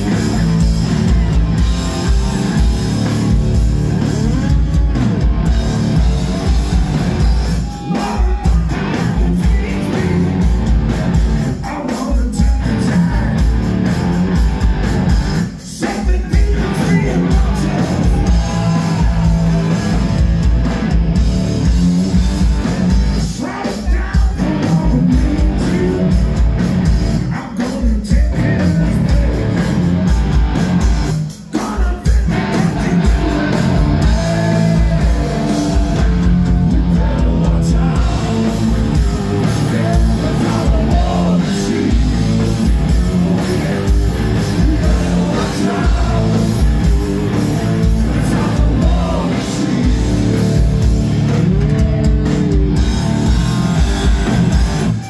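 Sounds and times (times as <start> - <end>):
bass guitar: 0.0 - 55.0
distorted electric guitars: 0.0 - 55.0
drums: 0.0 - 55.0
person singing: 7.5 - 10.5, 15.8 - 20.1, 22.7 - 26.4, 31.5 - 50.4.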